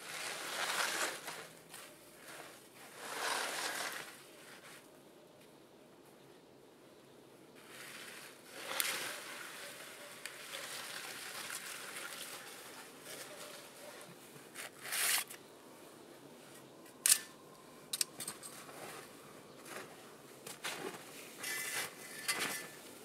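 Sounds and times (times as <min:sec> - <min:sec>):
folding saw blade clicking: 0:17.0 - 0:17.3.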